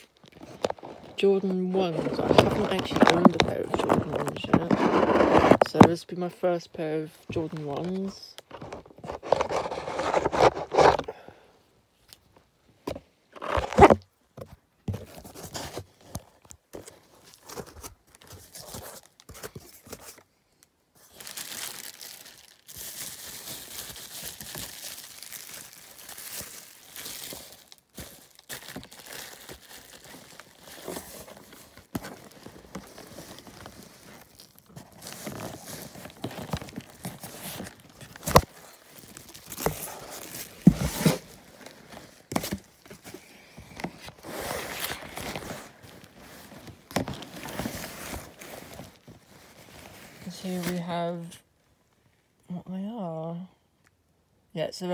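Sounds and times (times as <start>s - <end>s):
bubble wrap crinkling and tearing: 15.2s - 51.4s.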